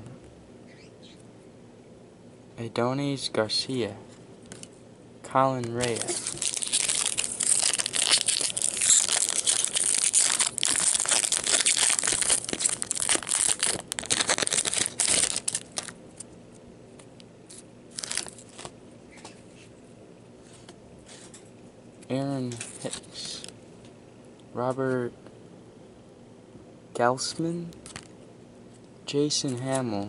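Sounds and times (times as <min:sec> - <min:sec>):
cards rustling: 0:05.6 - 0:16.3, 0:17.5 - 0:18.7
foil wrapper crinkling and tearing: 0:05.6 - 0:16.3, 0:17.5 - 0:18.8.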